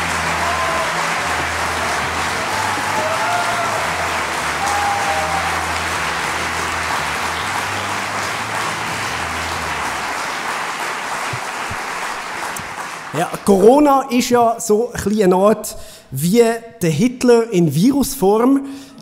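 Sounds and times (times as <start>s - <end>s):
music with low bass line: 0.0s - 10.2s
audience applauding: 0.0s - 14.1s.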